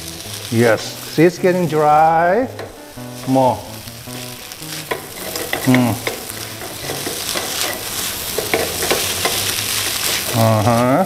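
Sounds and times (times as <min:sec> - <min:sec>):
rice sizzling in pan: 0:00.0 - 0:11.0
spatula scraping pan: 0:04.1 - 0:11.0.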